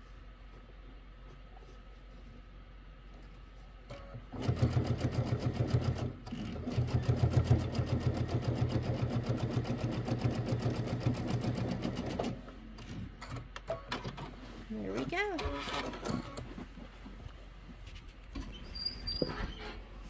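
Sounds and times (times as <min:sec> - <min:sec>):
sewing machine stitching: 0:03.9 - 0:12.4.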